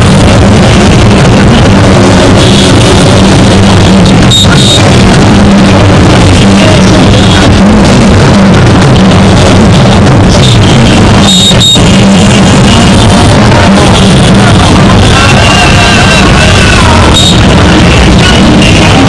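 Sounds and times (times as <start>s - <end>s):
loud music with drums: 0.0s - 19.0s.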